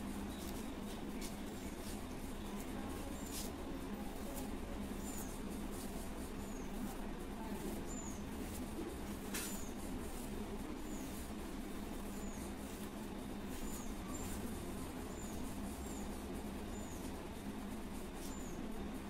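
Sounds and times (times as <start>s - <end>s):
comb swishing through hair: 0.3s - 6.2s.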